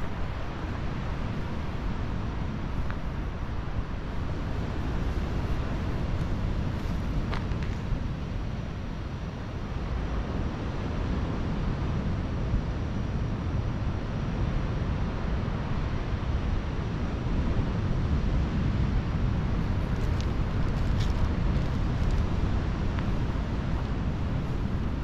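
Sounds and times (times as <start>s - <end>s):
wind buffeting microphone: 17.5s - 25.0s.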